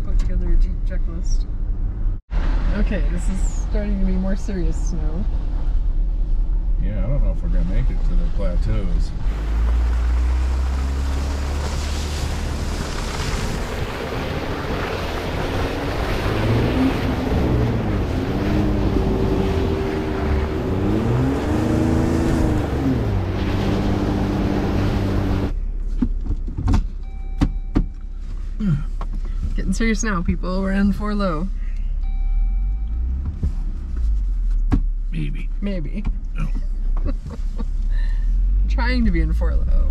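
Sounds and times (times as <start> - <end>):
car engine running: 0.0 - 39.9
tyres on snow: 9.2 - 25.5.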